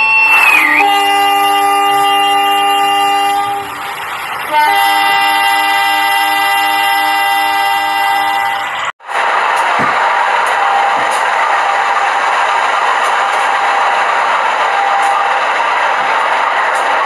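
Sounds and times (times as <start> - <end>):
train horn blasts: 0.0 - 8.8.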